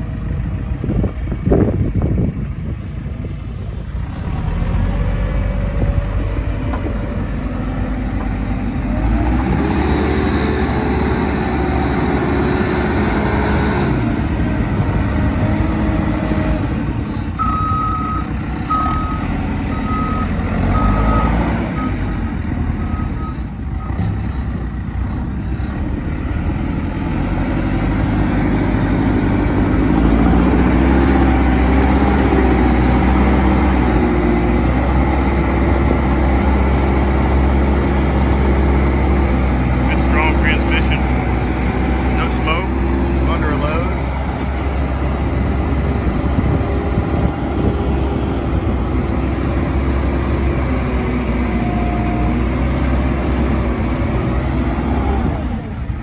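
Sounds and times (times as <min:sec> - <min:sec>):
diesel engine running: 0:00.0 - 0:56.0
reversing alarm beeps: 0:17.4 - 0:22.0.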